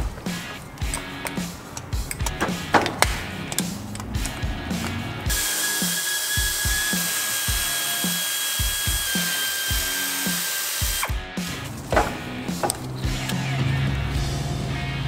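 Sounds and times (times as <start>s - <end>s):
background music with steady beat: 0.0s - 15.0s
sharp metal clicks: 0.2s - 5.5s, 6.4s - 13.6s
power tool whining: 3.2s - 13.8s.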